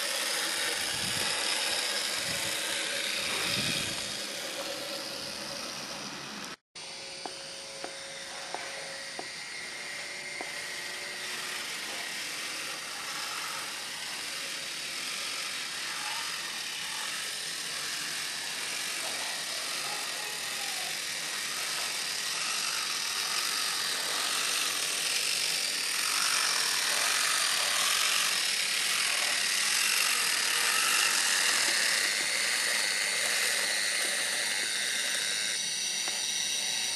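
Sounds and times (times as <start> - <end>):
small electric motor whirring: 0.0 - 36.9.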